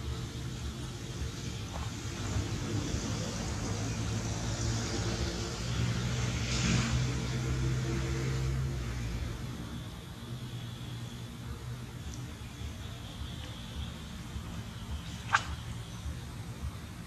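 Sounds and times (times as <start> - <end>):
vehicle engine passing by: 2.2 - 10.0.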